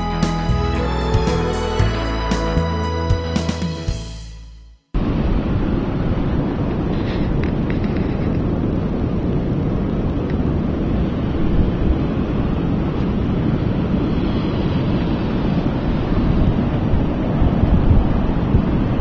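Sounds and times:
ocean surf: 5.0s - 19.0s
wind rumbling on microphone: 5.0s - 19.0s.

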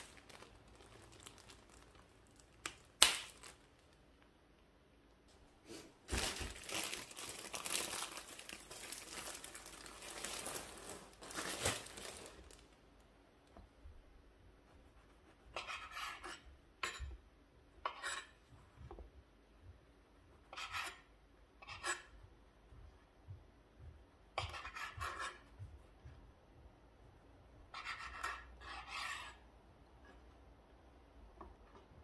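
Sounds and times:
knife sawing through bread crust: 14.8s - 16.4s.

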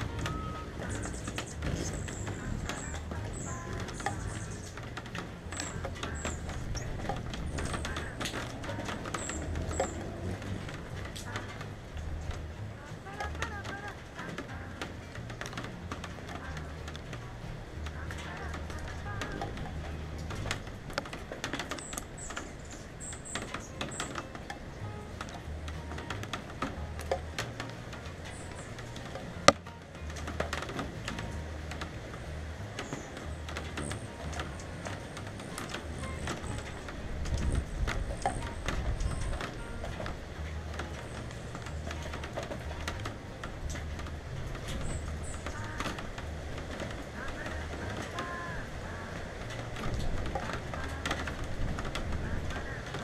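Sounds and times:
high chirps: 0.0s - 12.6s
raindrops tapping on camera: 0.0s - 53.0s
soft background music: 0.0s - 53.0s
wind buffeting microphone: 0.0s - 53.0s.

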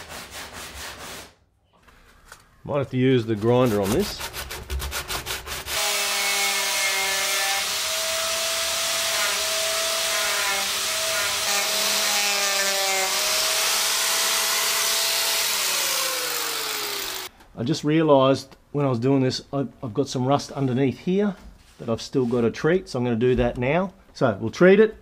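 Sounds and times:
rasping strokes: 3.3s - 17.3s
angle grinder on steel: 5.6s - 17.3s.

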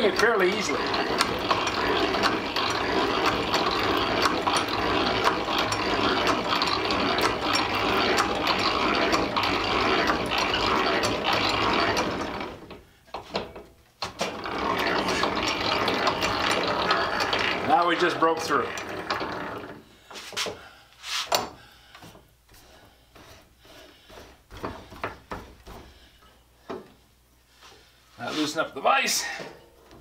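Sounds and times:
drill press gears clicking: 0.0s - 19.9s.

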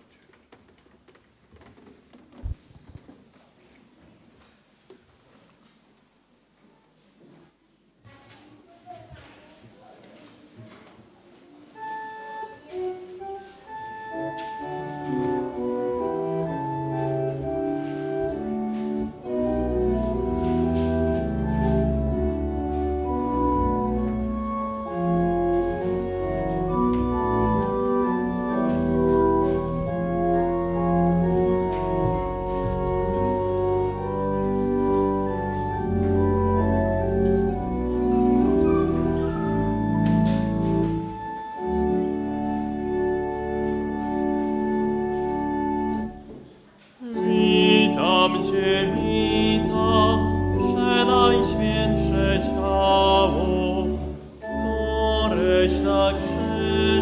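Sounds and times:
organ playing held chords: 11.8s - 46.4s, 47.0s - 57.0s
deep organ pedal bass notes: 15.0s - 46.3s, 47.2s - 57.0s.

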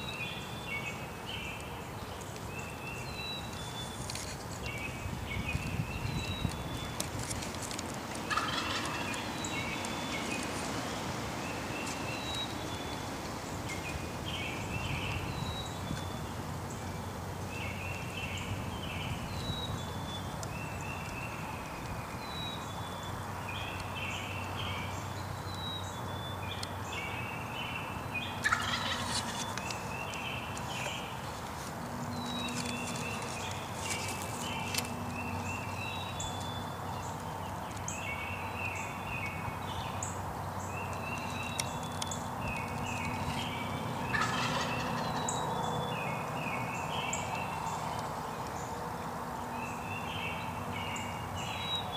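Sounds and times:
turkey gobbling: 8.3s - 9.2s, 28.4s - 29.4s, 44.1s - 45.2s.

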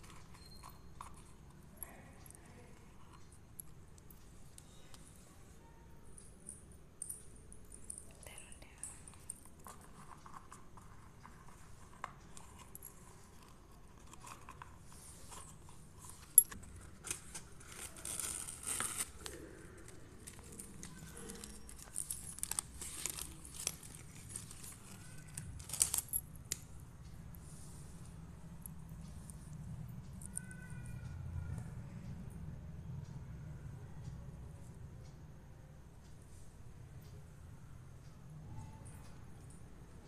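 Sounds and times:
packaging rustling: 13.4s - 26.1s.

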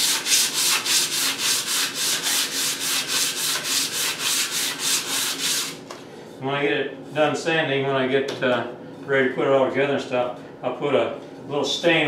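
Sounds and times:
sandpaper rubbing on wood: 0.0s - 5.8s.

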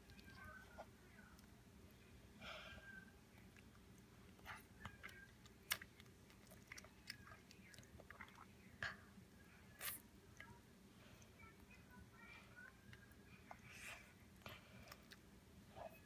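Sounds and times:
child chewing and slurping noodles: 2.6s - 10.1s, 12.7s - 16.0s.

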